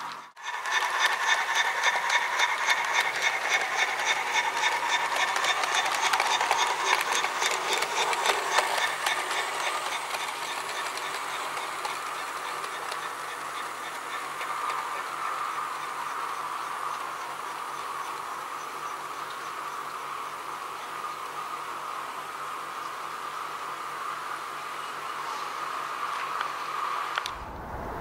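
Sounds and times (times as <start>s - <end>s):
model train wheels clicking: 0.0s - 19.6s.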